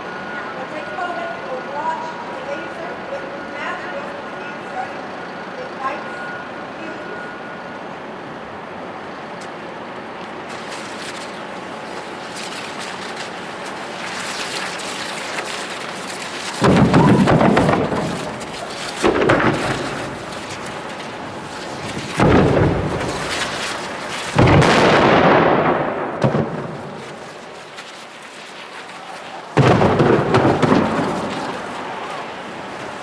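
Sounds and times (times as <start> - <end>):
hissing burn: 10.2 - 33.0
hydrogen balloon booms: 16.5 - 20.3, 21.9 - 23.6, 24.3 - 27.2, 29.5 - 31.7.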